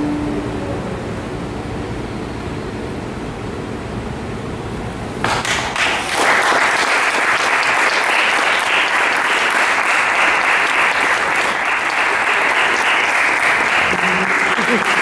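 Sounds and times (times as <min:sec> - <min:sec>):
audience applauding: 0:05.2 - 0:15.0.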